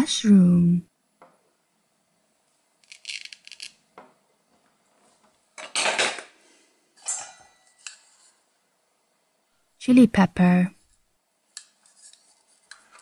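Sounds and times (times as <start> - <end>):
velcro ripping: 2.8 - 3.8.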